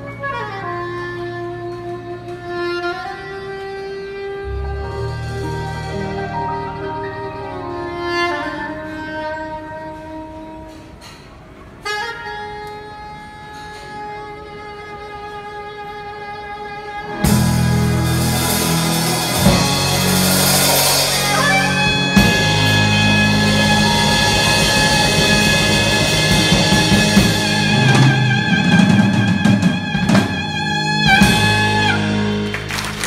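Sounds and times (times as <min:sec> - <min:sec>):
saxophone high note with vibrato: 0:00.0 - 0:11.2, 0:11.8 - 0:32.5
live jazz band playing: 0:00.0 - 0:33.0
cymbals crashing: 0:17.2 - 0:32.4.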